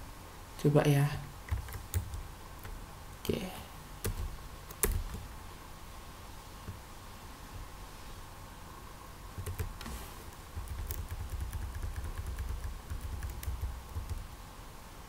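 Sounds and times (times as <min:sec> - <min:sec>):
faint electrical hum: 0:00.0 - 0:15.0
keyboard keystrokes clicking: 0:01.5 - 0:02.8, 0:04.0 - 0:05.3, 0:09.4 - 0:14.3.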